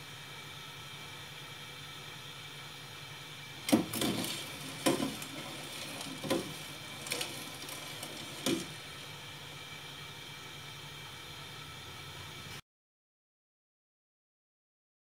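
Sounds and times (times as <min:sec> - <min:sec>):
metal spoon stirring in pot: 0:03.6 - 0:09.0.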